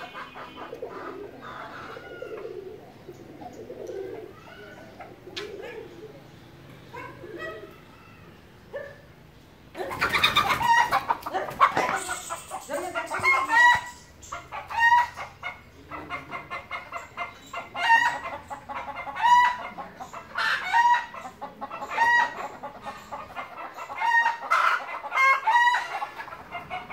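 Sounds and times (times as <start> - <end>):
squirrel alarm calls chattering: 11.8 - 19.0.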